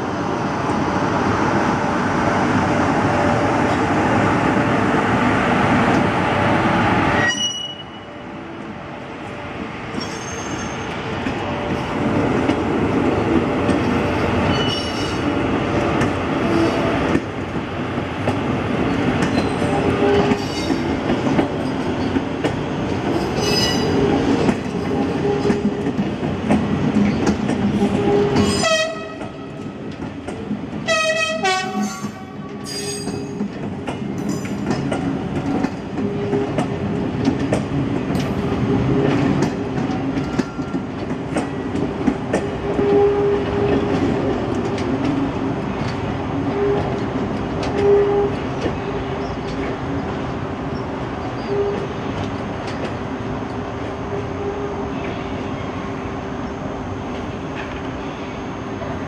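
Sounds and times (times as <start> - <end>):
train rumbling on rails: 0.0 - 59.0
short pitched train horn: 27.9 - 29.2, 30.9 - 33.1.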